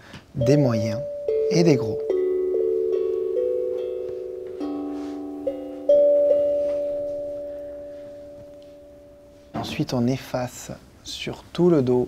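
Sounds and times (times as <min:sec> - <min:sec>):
steel tongue drum notes ringing: 0:00.4 - 0:09.6.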